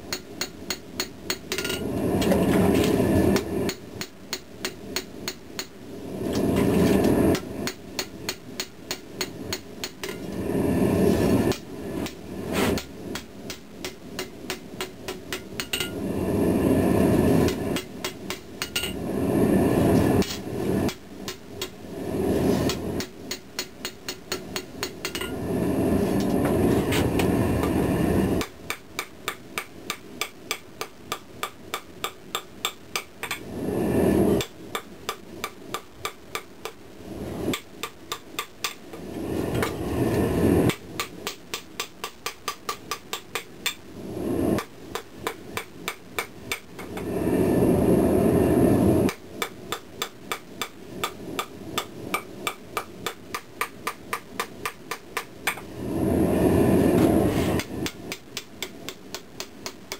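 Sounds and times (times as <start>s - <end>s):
hammer striking steel on anvil: 0.0s - 1.8s, 3.3s - 5.8s, 7.3s - 10.3s, 11.5s - 16.0s, 17.5s - 19.0s, 20.2s - 21.8s, 22.7s - 25.3s, 28.4s - 33.4s, 40.7s - 43.8s, 49.1s - 55.6s.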